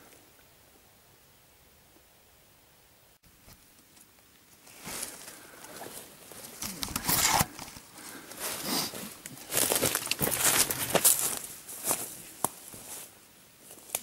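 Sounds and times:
dry leaves rustling and crackling: 7.2s - 14.0s.

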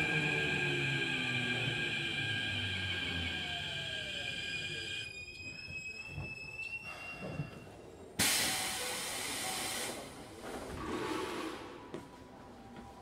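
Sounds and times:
electric train inverter whine: 0.0s - 6.3s.

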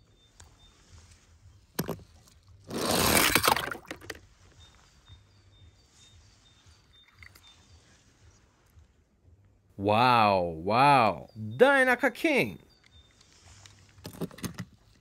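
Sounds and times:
toy car splashing into water: 2.6s - 4.2s.

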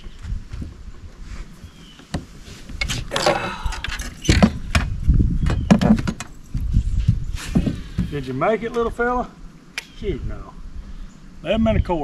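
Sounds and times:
fish knocking and rattling on board: 5.5s - 6.3s.

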